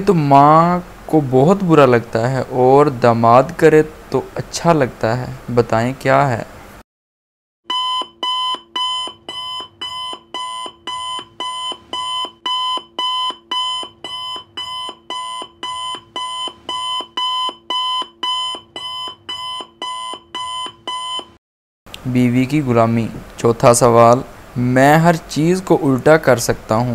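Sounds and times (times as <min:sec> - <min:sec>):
electronic alarm beeps: 0:07.7 - 0:21.4.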